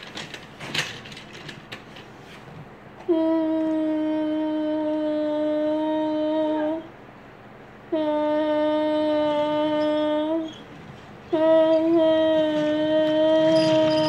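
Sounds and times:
child humming a steady note: 3.0s - 7.0s, 7.9s - 14.0s.

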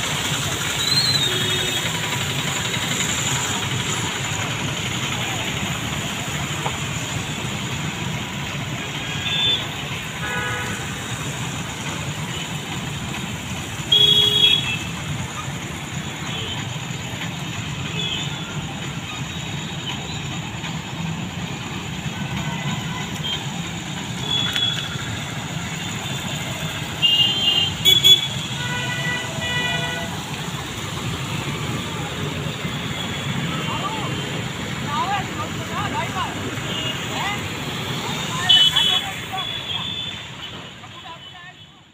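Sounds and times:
traffic rumble: 0.0s - 41.9s
vehicle horn toots: 9.2s - 11.0s, 13.9s - 15.0s, 27.0s - 30.2s.

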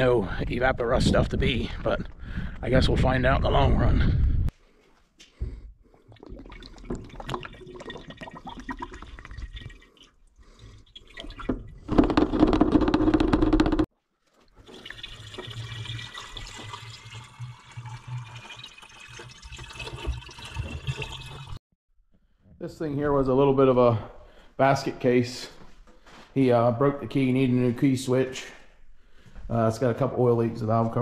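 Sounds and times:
liquid pouring and gurgling: 5.8s - 12.7s, 14.4s - 21.6s.

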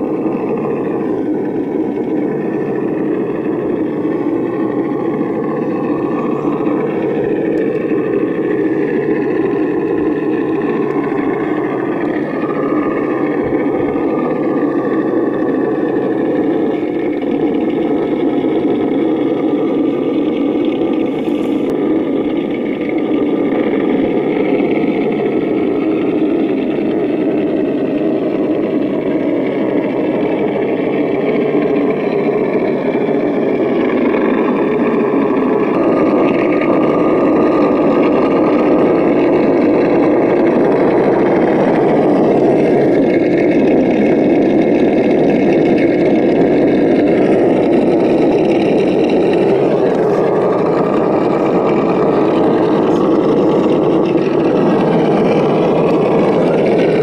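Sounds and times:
simulated engine sound: 0.0s - 57.0s.

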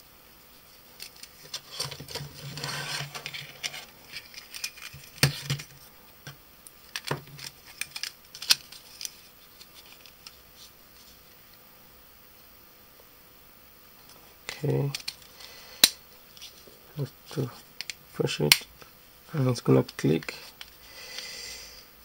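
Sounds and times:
plastic parts clicking: 3.1s - 5.7s, 14.9s - 16.0s.

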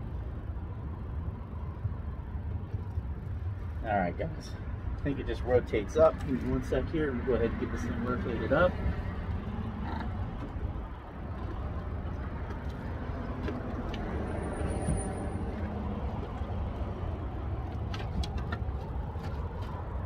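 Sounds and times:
low outdoor rumble: 0.0s - 20.0s.

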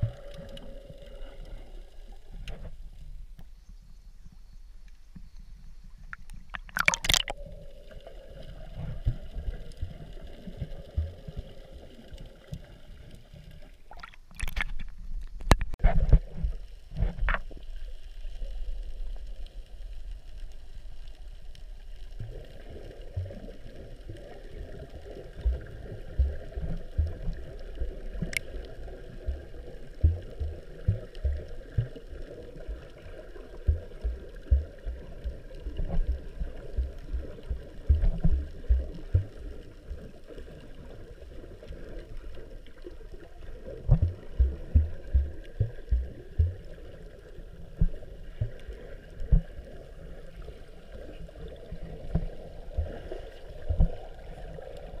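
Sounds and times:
water splashes: 0.0s - 3.2s, 6.0s - 18.4s, 20.8s - 55.0s
underwater sloshing and gurgling: 0.0s - 55.0s
dull underwater thumps: 27.0s - 27.4s, 29.3s - 32.0s, 33.6s - 35.0s, 35.8s - 39.4s, 43.9s - 46.7s.

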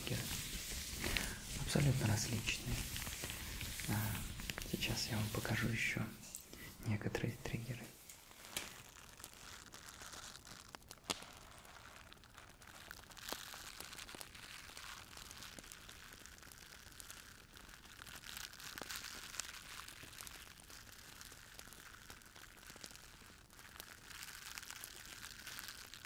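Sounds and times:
soft crackling and crinkling: 0.0s - 26.0s.

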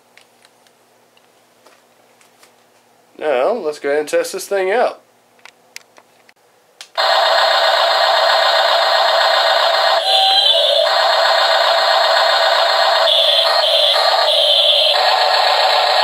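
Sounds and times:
buzzy toy sound effects from speaker: 7.0s - 16.0s.

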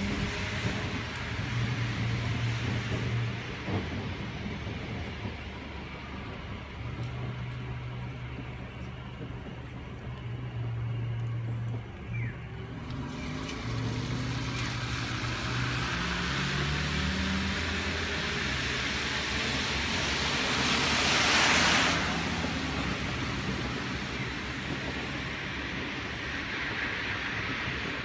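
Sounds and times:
low engine hum: 0.0s - 28.0s
tyres hissing on wet road: 0.0s - 28.0s.

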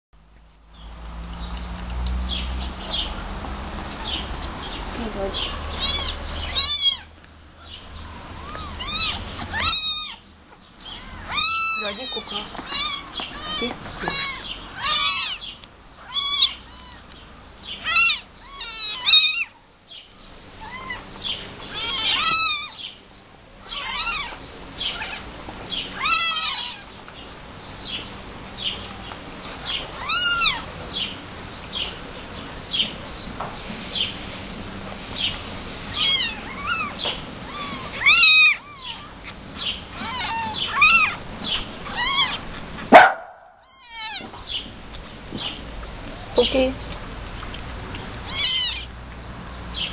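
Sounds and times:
kittens mewing: 5.2s - 7.1s, 8.0s - 10.2s, 10.8s - 17.1s, 17.7s - 19.6s, 20.5s - 22.9s, 23.6s - 27.0s, 29.9s - 30.7s, 35.9s - 44.6s, 48.2s - 49.0s.

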